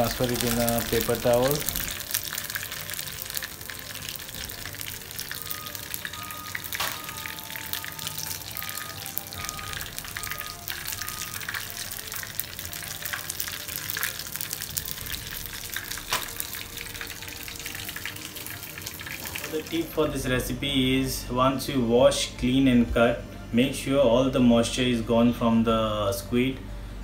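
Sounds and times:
food sizzling in hot oil: 0.0s - 20.2s.

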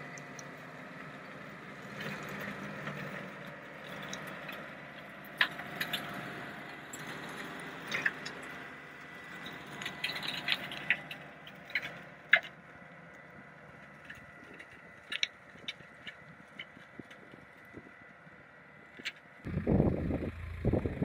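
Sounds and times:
sharp clicks and rattles: 9.4s - 12.6s
slasher machine drone: 19.4s - 21.0s.

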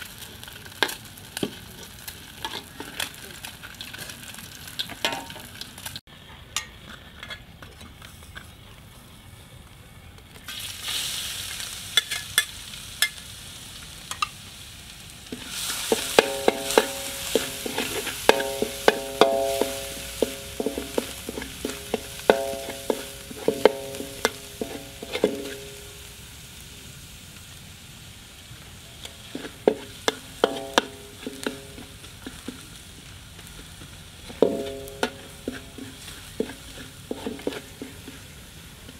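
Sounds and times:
eggs sizzling in oil: 0.0s - 7.2s, 10.4s - 38.9s
metal spatula scraping wok: 0.2s - 3.2s, 15.3s - 26.2s, 29.0s - 38.9s.

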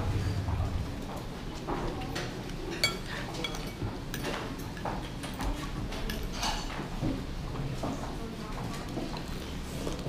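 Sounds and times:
cutlery clinking on ceramic bowl: 2.7s - 5.0s, 6.0s - 6.8s.

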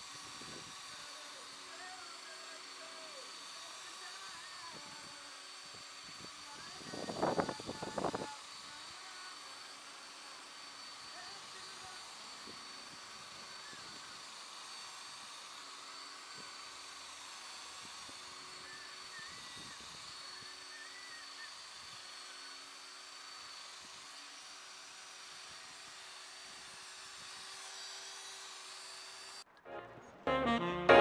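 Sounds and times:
cordless drill polishing: 0.0s - 29.4s.

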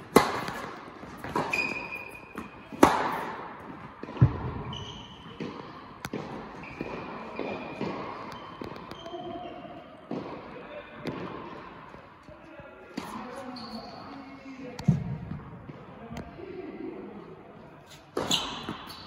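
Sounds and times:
tennis shoes squeaking: 0.0s - 3.8s, 4.4s - 10.0s, 13.0s - 14.5s, 17.8s - 19.0s
tennis ball hits echoing: 0.0s - 9.1s, 10.1s - 12.0s.

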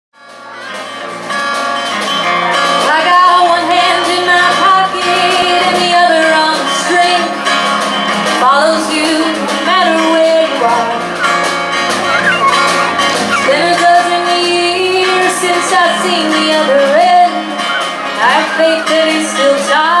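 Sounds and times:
live pop-folk band playing: 0.2s - 20.0s
woman singing wordlessly: 2.9s - 7.4s, 13.4s - 17.6s, 18.2s - 20.0s.

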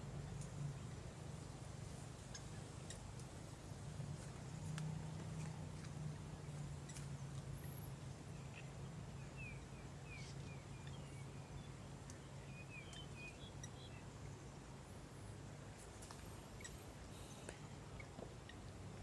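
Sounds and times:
steady low hum: 0.0s - 19.0s
bird chirping: 5.4s - 14.4s, 16.0s - 19.0s.

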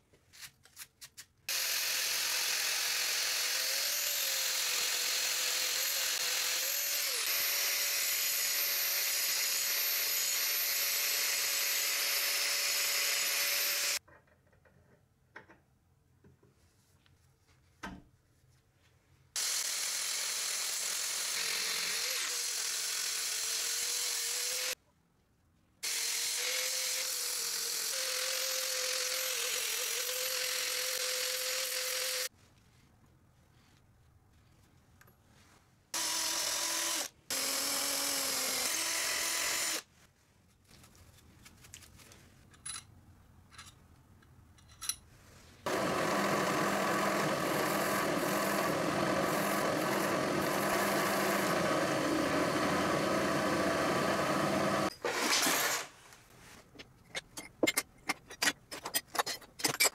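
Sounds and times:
power tool motor whine: 1.5s - 14.0s, 45.7s - 55.9s.

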